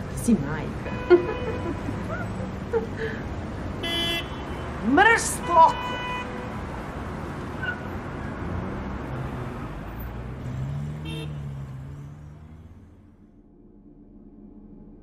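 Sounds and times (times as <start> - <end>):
road noise: 0.0 - 15.0
car horn toot: 0.8 - 1.8, 3.8 - 6.6, 10.9 - 11.8
car engine running: 6.7 - 15.0.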